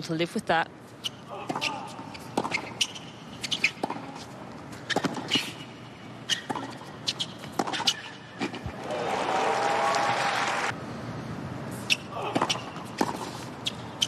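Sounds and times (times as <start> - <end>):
shoes squeaking on court: 0.8 - 8.7, 11.7 - 14.0
racket striking tennis ball: 1.4 - 4.3, 6.3 - 8.8, 12.2 - 13.5
tennis ball bouncing: 1.5 - 5.7, 6.3 - 8.8, 12.3 - 13.8
crowd applauding: 8.7 - 10.7.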